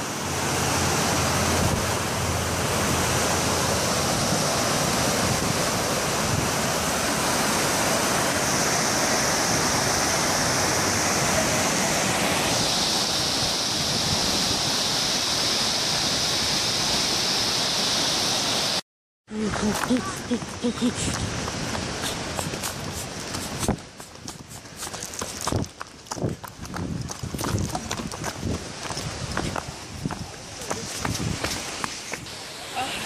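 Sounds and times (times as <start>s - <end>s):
waterfall rushing: 0.0s - 18.8s, 19.6s - 25.5s, 28.5s - 33.0s.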